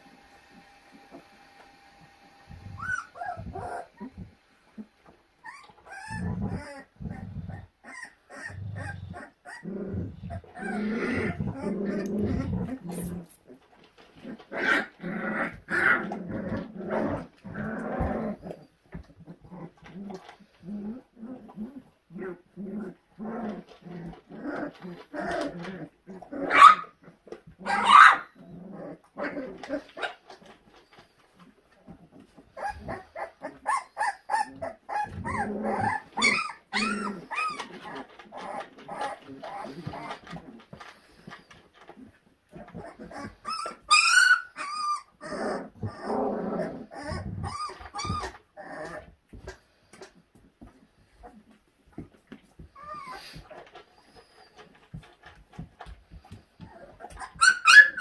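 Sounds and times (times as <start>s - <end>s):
puppies growling and yipping: 2.0s - 58.0s
puppy yelps: 2.6s - 4.2s, 5.4s - 9.7s, 10.3s - 12.5s, 26.4s - 27.0s, 27.6s - 28.4s, 32.6s - 40.2s, 42.7s - 46.1s, 46.8s - 49.1s, 52.8s - 53.4s, 56.6s - 58.0s.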